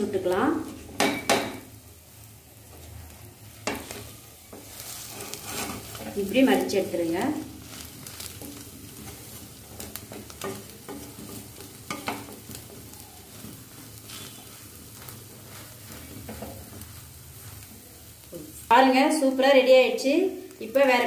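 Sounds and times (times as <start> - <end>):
omelette sizzling in a pan: 0.0 - 21.0
wooden spatula tapping pan: 0.9 - 1.8, 3.6 - 4.8, 8.1 - 17.0.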